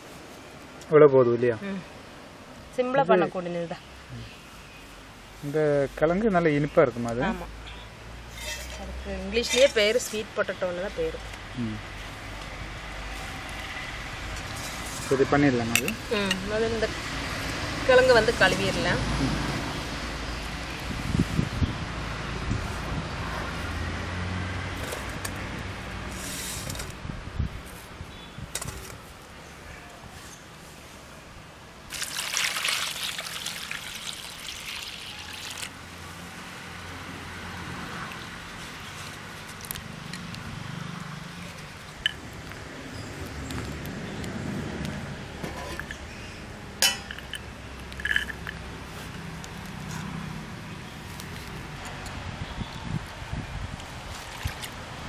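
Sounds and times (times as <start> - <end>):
chillies clinking in steel bowl: 46.8 - 48.6.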